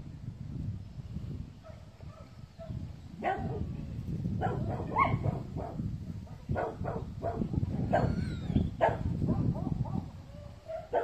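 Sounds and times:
dogs barking: 1.6s - 3.7s, 4.4s - 5.8s, 6.4s - 8.2s, 8.8s - 11.0s.

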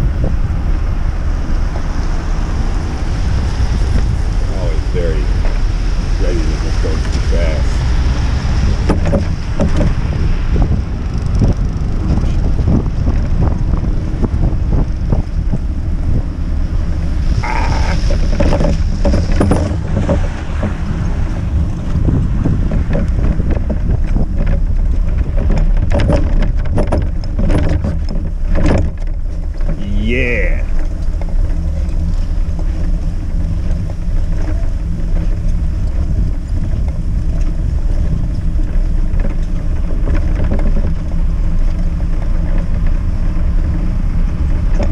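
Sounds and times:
wind noise on microphone: 0.0s - 44.9s
tyres on slushy snow: 4.2s - 8.8s, 17.2s - 22.6s
bike knocks and rattles: 6.5s - 44.9s.

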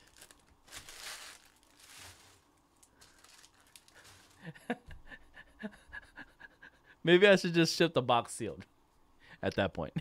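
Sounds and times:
wrapper crinkling as torn open: 0.0s - 4.4s.

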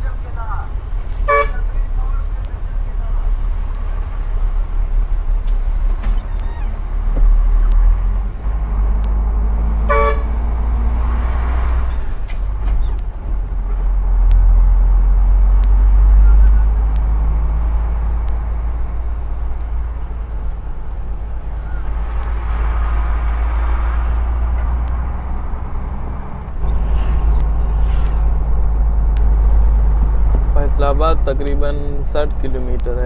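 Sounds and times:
diesel truck engine droning: 0.0s - 33.0s
vehicle horn toot: 1.2s - 1.8s, 9.9s - 10.4s.

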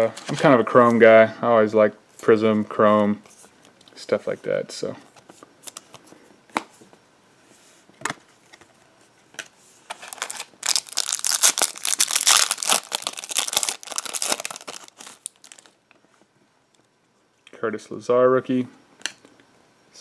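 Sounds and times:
foil wrapper tearing and crinkling: 9.9s - 15.8s.

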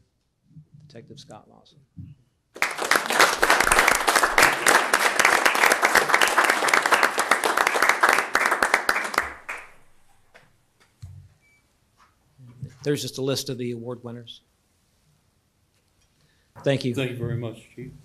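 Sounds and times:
audience applauding: 2.6s - 9.9s.

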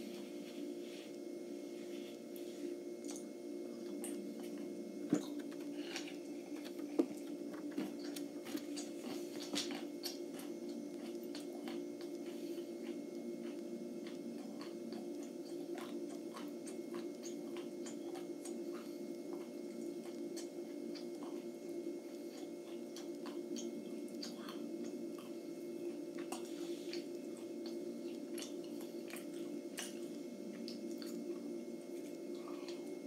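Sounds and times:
steady low hum: 0.0s - 33.0s
person chewing peanuts: 3.0s - 33.0s.

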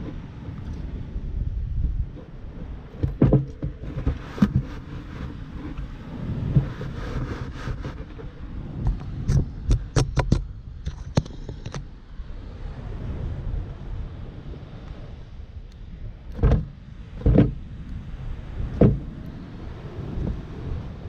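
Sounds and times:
wind rumble on microphone: 0.0s - 21.0s.

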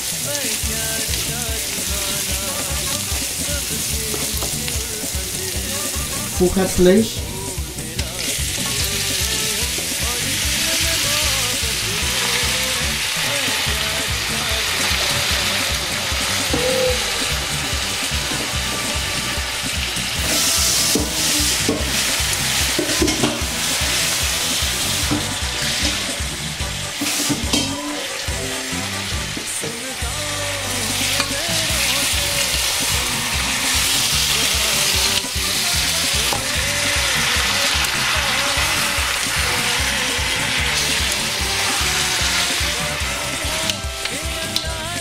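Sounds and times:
meat sizzling in hot oil: 0.0s - 45.0s.

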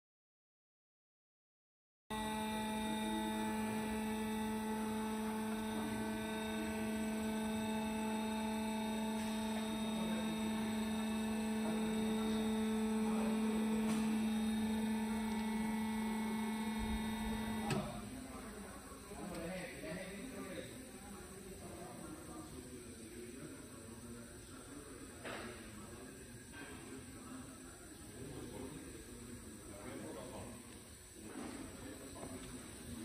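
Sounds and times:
motor stopping click: 2.1s - 18.1s
lift motor humming: 2.1s - 19.5s.

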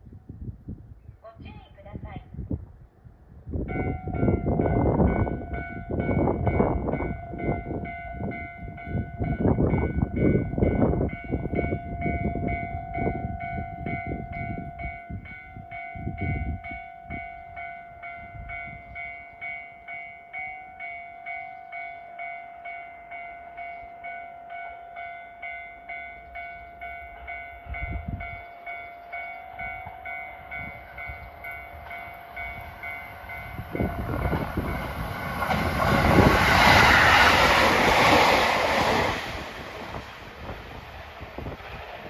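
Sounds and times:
level crossing warning bell: 3.7s - 37.0s.

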